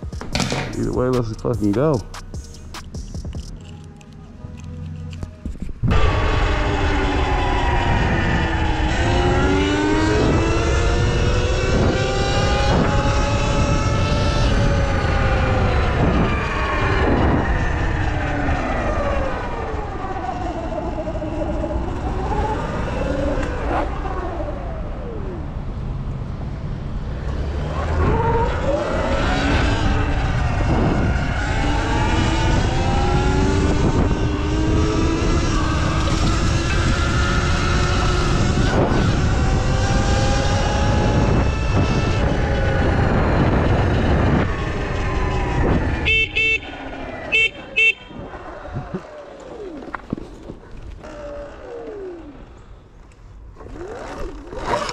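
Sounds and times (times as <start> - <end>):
wind rumbling on microphone: 5.2 - 54.9
electric motor whining: 48.7 - 54.9.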